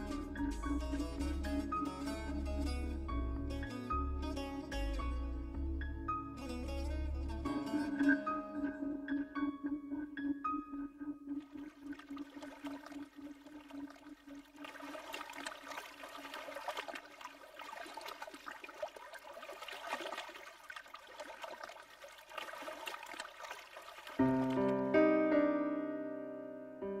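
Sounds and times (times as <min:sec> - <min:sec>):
sea water lapping: 0:11.4 - 0:24.7.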